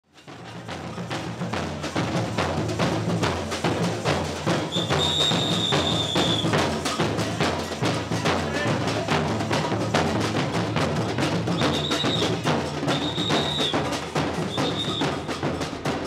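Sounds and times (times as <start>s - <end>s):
samba percussion band drumming: 0.1s - 16.0s.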